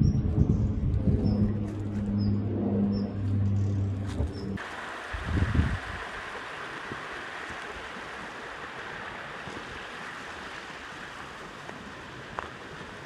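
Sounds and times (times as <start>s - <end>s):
stream rushing over rocks: 4.6s - 13.0s.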